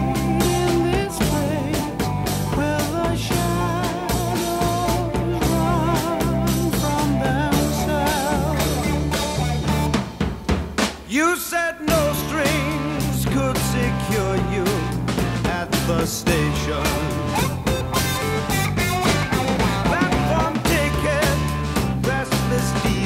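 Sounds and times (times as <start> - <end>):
drum kit beat: 0.0 - 23.0.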